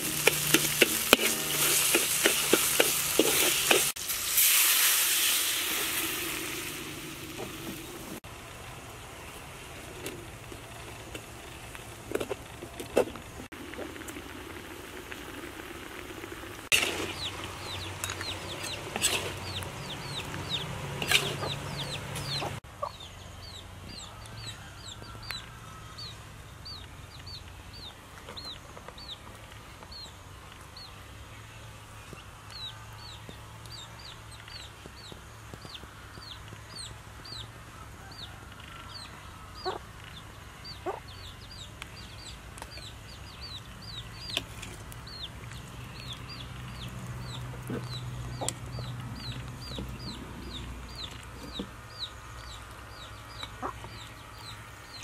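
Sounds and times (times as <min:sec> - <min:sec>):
chicks peeping: 0:17.1 - 0:25.4, 0:32.1 - 0:37.5, 0:38.9 - 0:44.4, 0:45.1 - 0:55.0.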